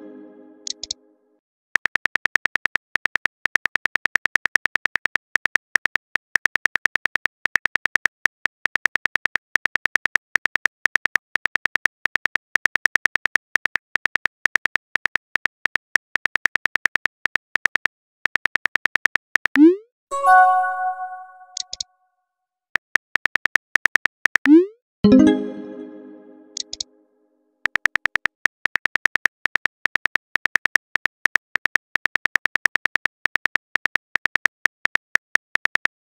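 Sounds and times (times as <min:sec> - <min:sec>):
phone keyboard typing clicks: 0:00.6 - 0:01.0.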